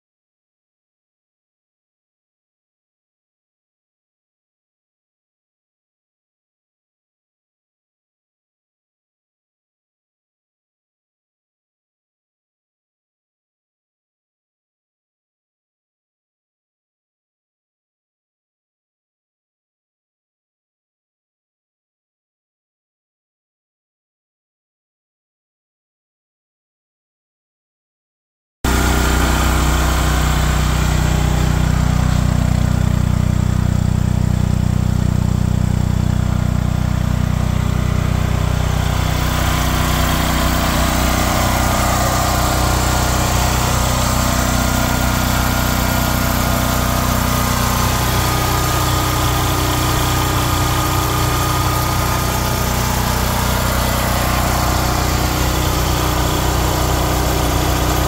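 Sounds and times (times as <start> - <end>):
generator engine running: 28.7 - 58.0.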